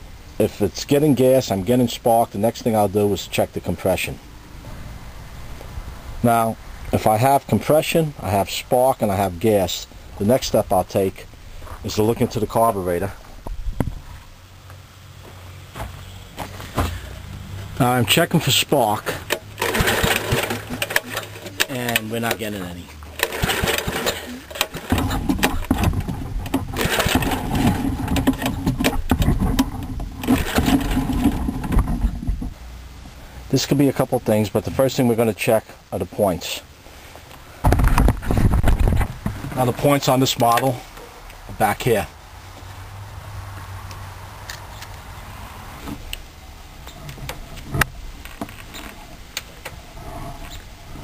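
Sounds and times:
engine cranking without firing: 0:17.8 - 0:32.5.

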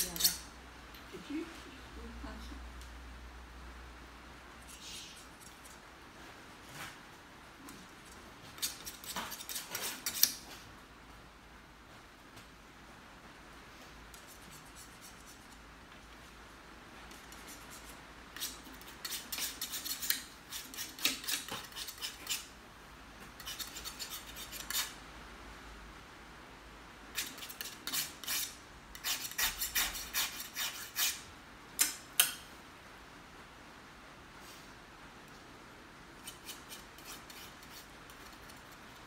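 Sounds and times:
scratchy paint brush strokes: 0:14.1 - 0:15.7, 0:17.1 - 0:22.5, 0:36.2 - 0:39.0.

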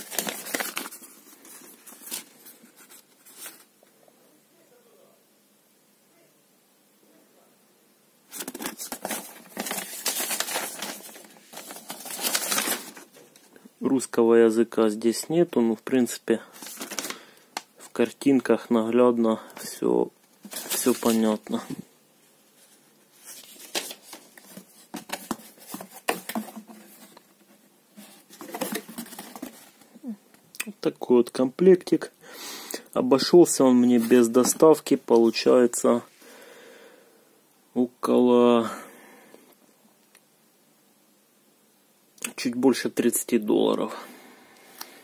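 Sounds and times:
cardboard box crackling: 0:00.0 - 0:03.6, 0:08.3 - 0:13.2, 0:16.6 - 0:17.2, 0:23.3 - 0:27.2, 0:28.0 - 0:29.8
paper rustling and crinkling: 0:00.0 - 0:03.7, 0:08.3 - 0:13.5, 0:16.5 - 0:17.7, 0:20.4 - 0:21.8, 0:22.6 - 0:30.0, 0:33.8 - 0:35.4.

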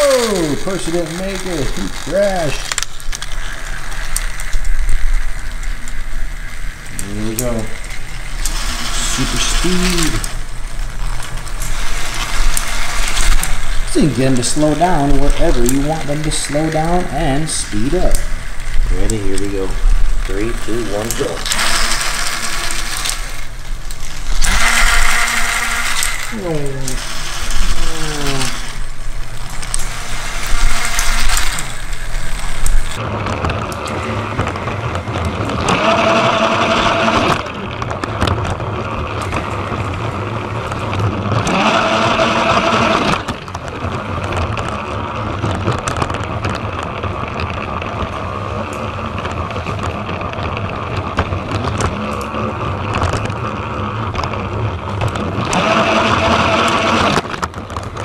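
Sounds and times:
hissing rustle: 0:00.0 - 0:33.0
gear whine: 0:00.0 - 0:58.0
toy train motors whirring: 0:00.0 - 0:58.0.

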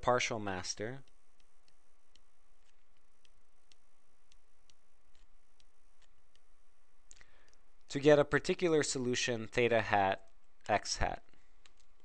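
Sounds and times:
stylus tapping on tablet screen: 0:01.0 - 0:06.6.

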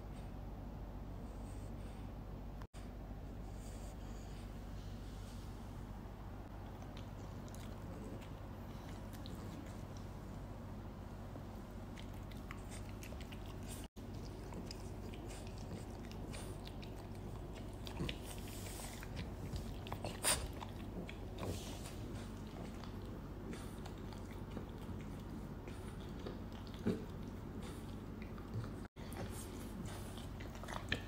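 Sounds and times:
steady low hum: 0:00.0 - 0:31.0
dogs play-biting: 0:11.9 - 0:31.0.

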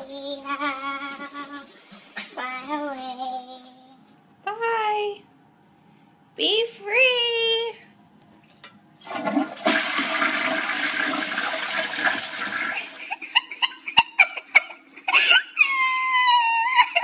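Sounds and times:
water gurgling as it drains: 0:09.0 - 0:13.0
toilet flushing: 0:09.0 - 0:13.2.

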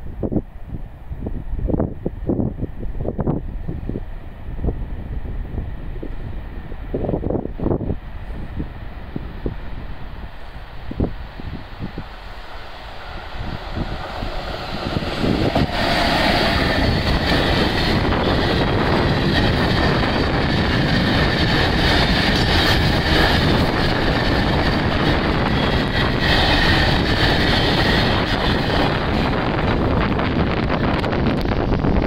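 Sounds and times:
freight train passing: 0:00.0 - 0:32.0
wheels rumbling on rails: 0:00.0 - 0:32.0.

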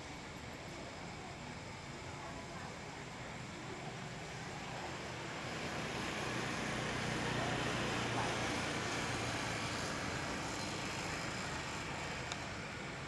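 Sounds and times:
vehicle engine hum: 0:04.1 - 0:13.0.

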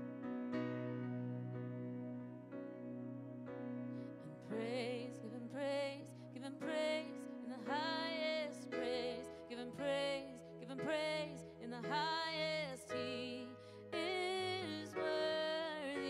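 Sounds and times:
digital piano chords: 0:00.0 - 0:16.0
woman singing worship song: 0:04.2 - 0:16.0.

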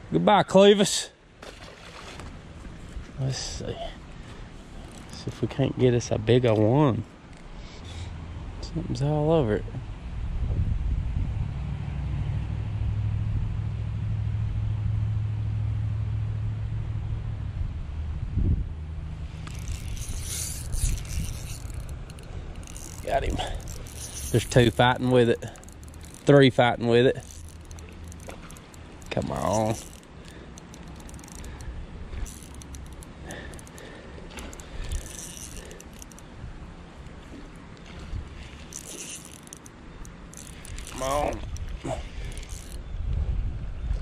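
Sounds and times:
low rumble of road traffic: 0:00.0 - 0:44.0
fishing reel ratcheting: 0:04.8 - 0:05.2, 0:19.3 - 0:36.3, 0:38.5 - 0:42.8.

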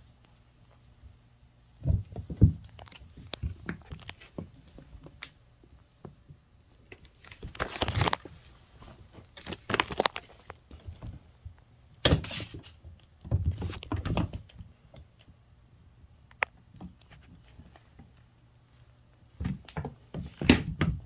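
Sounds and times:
kittens scuffling on wooden floor: 0:01.8 - 0:05.4.

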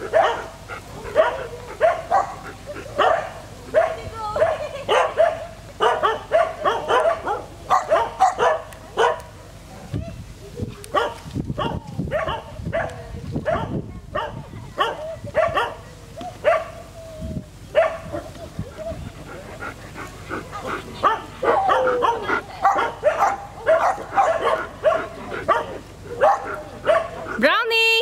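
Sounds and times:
dogs barking: 0:00.0 - 0:09.4, 0:10.9 - 0:16.9, 0:17.7 - 0:27.4.

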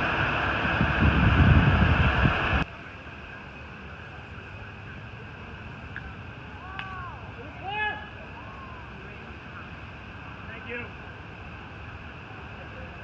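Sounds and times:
wind buffeting microphone: 0:00.0 - 0:02.7
faint outdoor background: 0:00.0 - 0:13.0.

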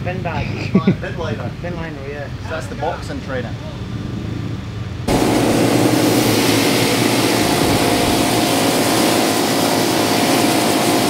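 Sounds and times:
pressure washer pump hum: 0:05.1 - 0:11.0
water jet hissing: 0:05.1 - 0:11.0.

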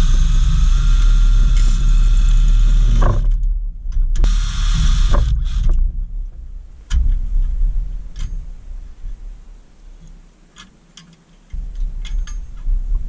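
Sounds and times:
cordless drill drilling metal: 0:00.0 - 0:03.3, 0:04.2 - 0:05.8
sharp metal click: 0:12.0 - 0:12.7.

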